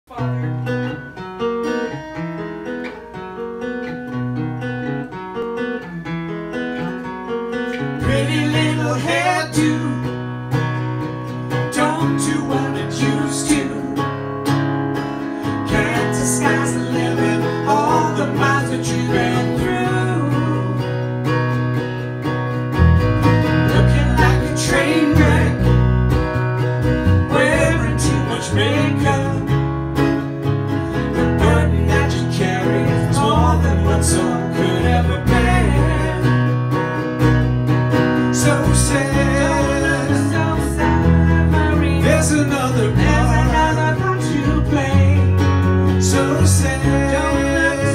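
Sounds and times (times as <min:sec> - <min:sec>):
acoustic guitar playing: 0:00.1 - 0:47.9
low bass line: 0:22.3 - 0:47.9.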